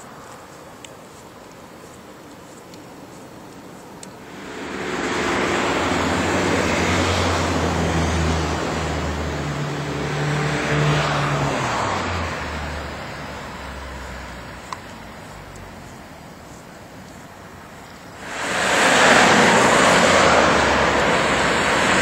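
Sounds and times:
motor vehicle passing: 4.2 - 17.4, 18.1 - 22.0.

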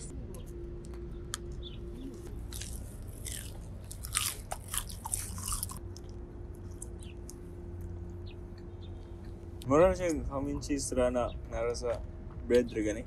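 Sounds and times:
crunchy chewing: 0.4 - 8.0.

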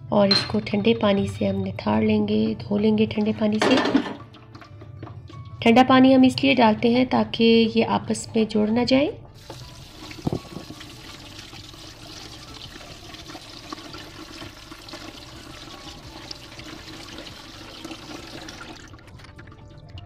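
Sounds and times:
tap water running into colander: 9.4 - 20.0
water splashing into steel sink: 9.4 - 20.0.

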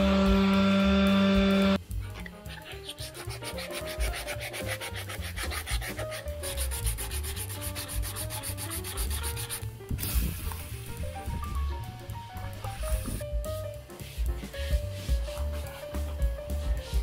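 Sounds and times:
sandpaper rubbing on wood: 2.5 - 9.8, 13.9 - 17.0.

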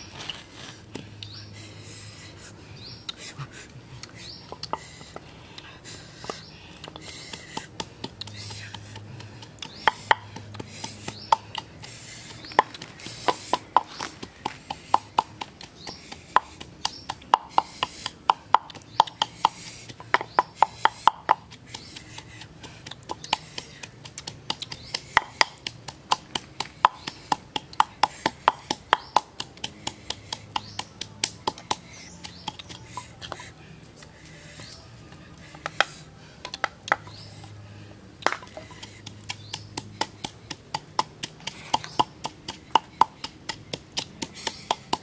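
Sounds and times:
wooden pestle knocking in mortar: 12.3 - 21.8, 23.0 - 32.8, 38.2 - 45.0.

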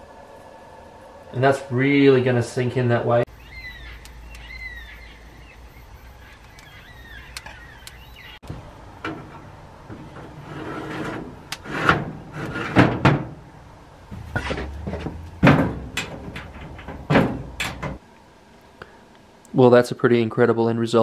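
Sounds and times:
wire rack scraping and clanking: 9.0 - 13.4, 14.1 - 18.0
metal door banging shut: 11.0 - 13.4, 14.1 - 18.0
latch clicking: 14.2 - 18.0.

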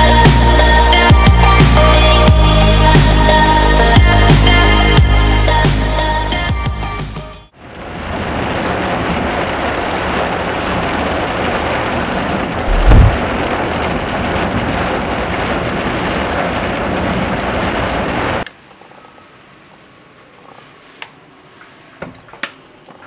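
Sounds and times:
heavy rain falling: 7.6 - 18.4
low rumble of thunder: 11.9 - 18.3.

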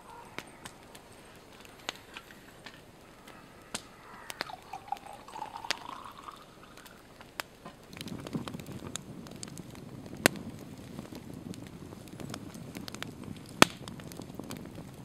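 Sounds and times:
campfire crackling and popping: 0.0 - 15.0
liquid pouring into steel cup: 4.1 - 7.1.

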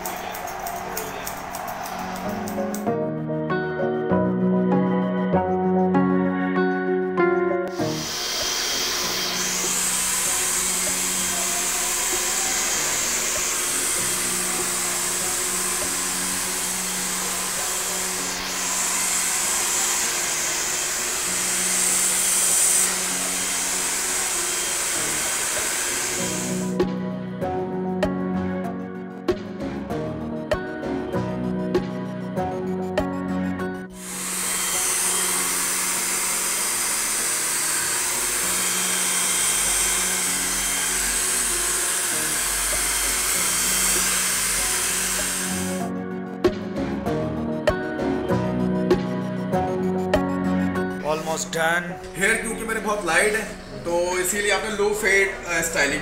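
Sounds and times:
hair dryer blowing: 0.0 - 3.0, 7.7 - 26.9, 33.9 - 45.9.

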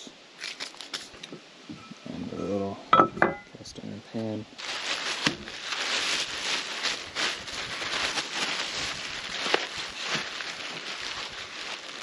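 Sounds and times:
rustling and crinkling: 0.4 - 1.9, 4.2 - 12.0.

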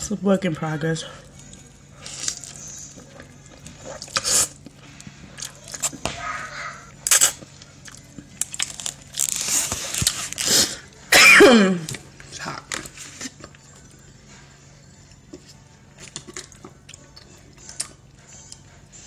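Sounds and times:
slurping noodles: 3.7 - 4.6.

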